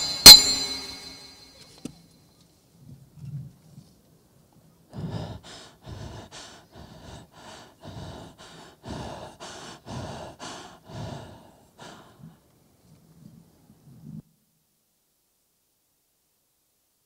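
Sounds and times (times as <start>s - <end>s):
heavy panting: 4.9s - 12.4s.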